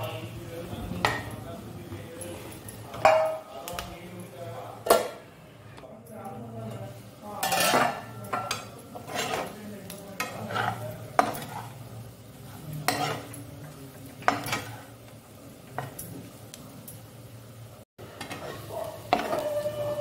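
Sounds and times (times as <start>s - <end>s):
food sizzling in pan: 0.0s - 20.0s
spoon scraping frying pan: 6.6s - 16.4s, 18.0s - 20.0s
spoon knocking on pan: 18.2s - 19.6s.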